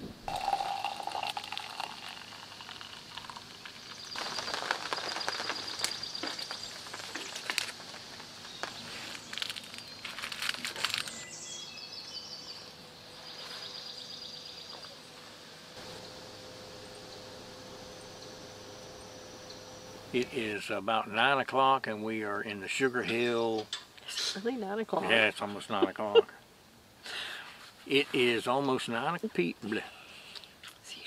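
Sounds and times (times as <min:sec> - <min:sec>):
sharp crackles and clicks: 0:00.3 - 0:11.2
insects trilling: 0:00.4 - 0:12.4, 0:15.8 - 0:20.6
birds calling: 0:01.7 - 0:15.2, 0:15.8 - 0:21.2.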